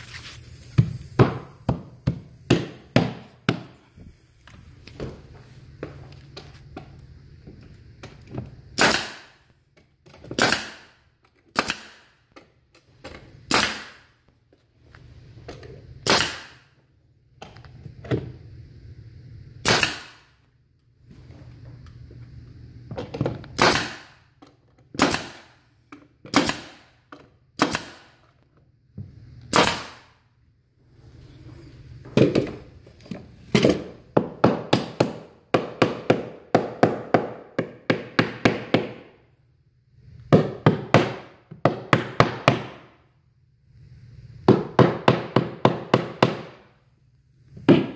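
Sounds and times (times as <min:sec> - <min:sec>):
nail gun firing into wood: 0:08.8 - 0:09.4, 0:10.3 - 0:12.2, 0:13.5 - 0:14.1, 0:16.0 - 0:16.7, 0:19.6 - 0:20.3, 0:23.6 - 0:24.2, 0:25.0 - 0:25.6, 0:26.3 - 0:27.0, 0:27.6 - 0:28.2, 0:29.5 - 0:30.2.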